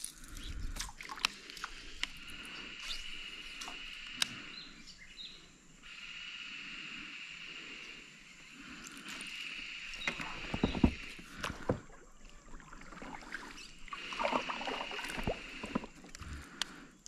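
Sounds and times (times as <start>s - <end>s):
steady high hiss: 1.4s - 11.2s
water sloshing: 10.0s - 16.6s.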